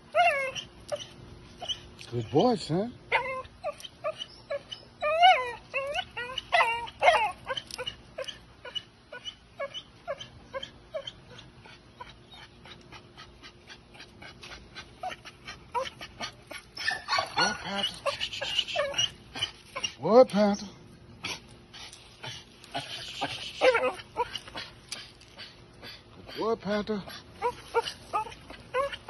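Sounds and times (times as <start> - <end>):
dog whining and whimpering: 0.0 - 20.1, 21.2 - 29.0.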